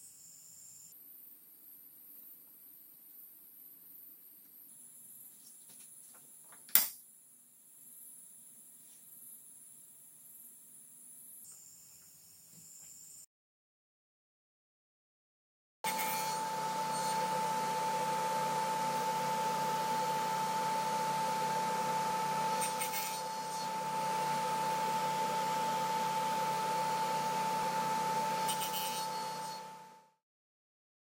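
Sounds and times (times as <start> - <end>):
saw cutting through wood: 15.9 - 29.9
table saw whining: 15.9 - 30.1.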